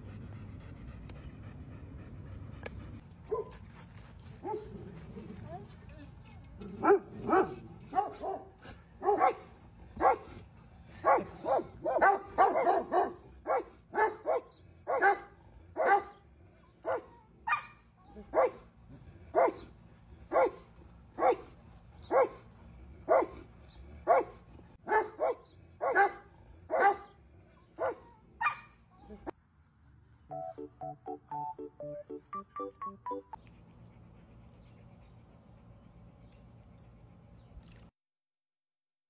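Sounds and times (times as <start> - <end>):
dog barking: 3.3 - 3.6, 4.4 - 4.7, 6.8 - 10.3, 11.0 - 16.2, 16.9 - 18.6, 19.4 - 19.7, 20.3 - 20.6, 21.2 - 21.5, 22.1 - 22.4, 23.1 - 23.4, 24.1 - 27.1, 27.8 - 28.8.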